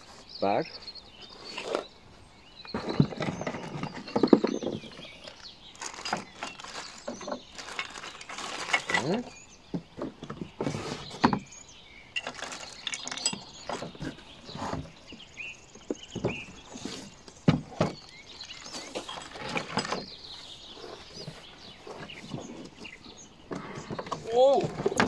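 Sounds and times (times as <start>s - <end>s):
cardboard and plastic rustling: 2.6s - 9.4s, 12.2s - 25.0s
knocks and clatters: 2.6s - 11.5s, 12.2s - 15.2s, 17.3s - 20.2s.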